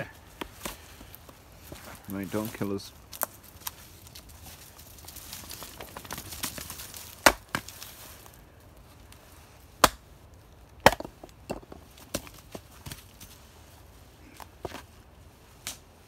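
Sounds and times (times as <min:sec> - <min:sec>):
axe chopping firewood: 0:07.1 - 0:07.8, 0:09.8 - 0:10.1, 0:10.8 - 0:13.0.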